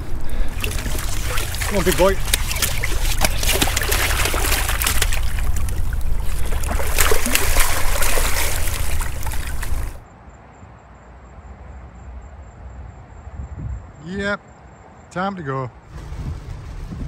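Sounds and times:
seawater splashing among rocks: 0:00.0 - 0:10.0.

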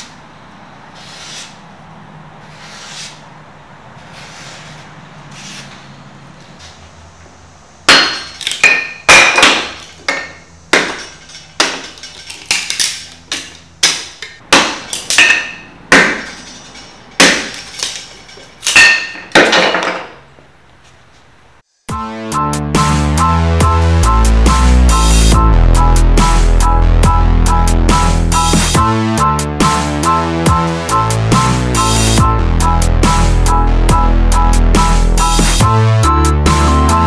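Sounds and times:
cleaver chopping into wooden block: 0:13.8 - 0:16.4.

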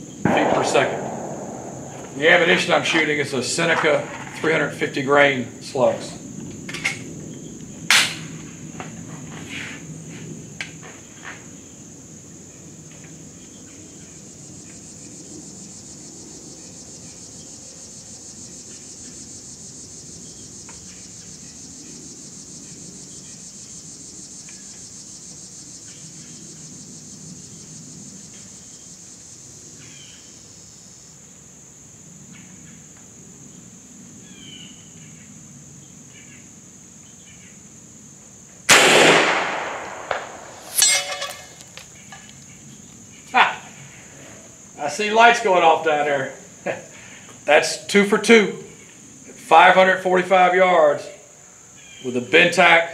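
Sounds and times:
high insect drone: 0:00.0 - 0:52.9
air rifle shot: 0:00.2 - 0:03.2, 0:38.7 - 0:41.5
burst of sharp clicks: 0:00.3 - 0:02.9, 0:38.7 - 0:41.9.

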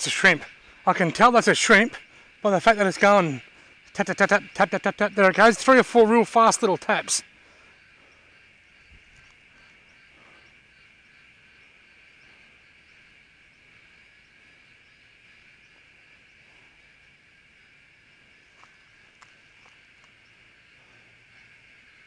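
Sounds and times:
high-pitched insect chirring: 0:00.0 - 0:22.0.

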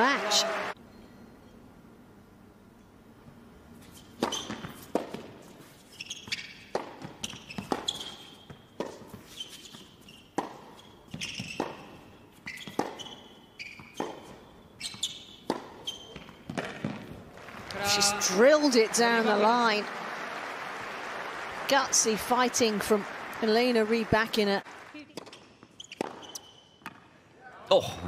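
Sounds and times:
shoes squeaking on court: 0:03.8 - 0:17.2, 0:25.1 - 0:27.0
tennis ball bouncing: 0:04.2 - 0:05.4, 0:06.2 - 0:17.7, 0:25.1 - 0:27.0
tennis ball hitting racket: 0:06.3 - 0:09.3, 0:10.3 - 0:17.2, 0:25.2 - 0:27.0.

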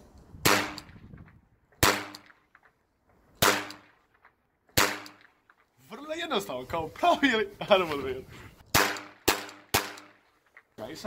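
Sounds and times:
toy starter revolver shots: 0:00.4 - 0:01.2, 0:01.8 - 0:02.6, 0:03.4 - 0:04.1, 0:04.7 - 0:05.4, 0:08.7 - 0:10.2.

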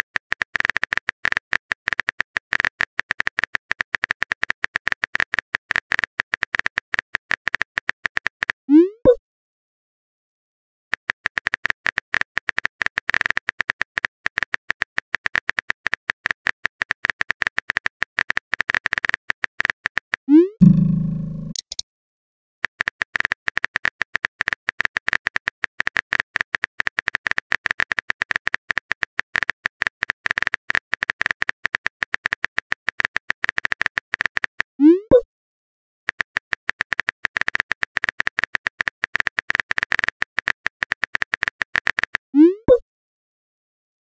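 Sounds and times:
message sent pop: 0:20.6 - 0:21.8
phone keyboard clicks: 0:20.6 - 0:21.8.

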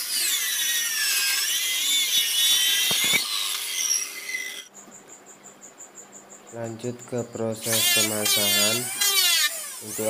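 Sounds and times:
circular saw cutting wood: 0:00.0 - 0:04.7, 0:07.6 - 0:10.0.

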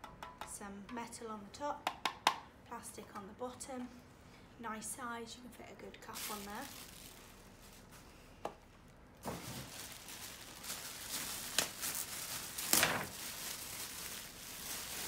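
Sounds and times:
plastic bag rustling and crinkling: 0:06.0 - 0:15.0.

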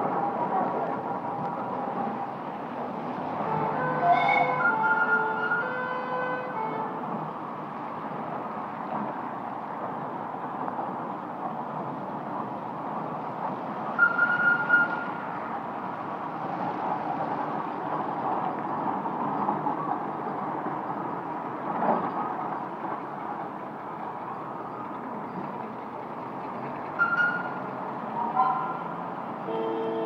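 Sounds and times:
high whistle toot: 0:14.0 - 0:15.1.

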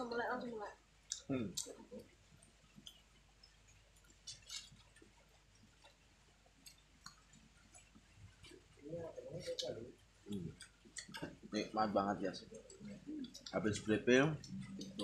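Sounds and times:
faint chewing: 0:00.7 - 0:15.0
small clicks and smacks: 0:01.1 - 0:08.8, 0:09.4 - 0:11.6.

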